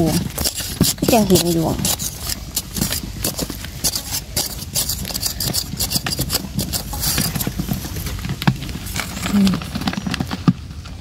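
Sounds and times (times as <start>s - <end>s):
metal blade scraping sandy soil: 0.0s - 7.8s.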